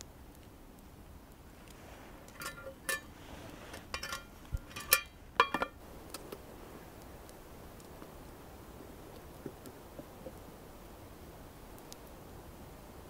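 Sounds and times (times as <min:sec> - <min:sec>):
metal lid clinking on pot: 0:02.3 - 0:03.1, 0:03.7 - 0:05.8.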